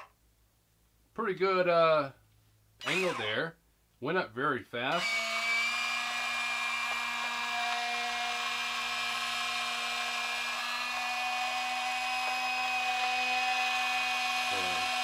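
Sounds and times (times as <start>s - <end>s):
toy motor and gearbox whining: 2.8s - 3.4s, 4.9s - 15.0s.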